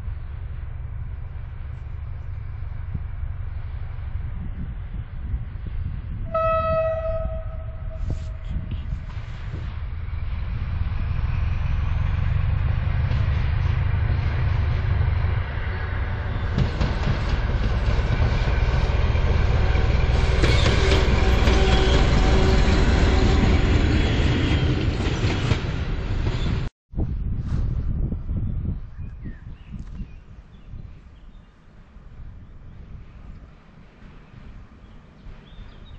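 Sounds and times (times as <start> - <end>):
diesel locomotive engine: 0.0 - 26.7.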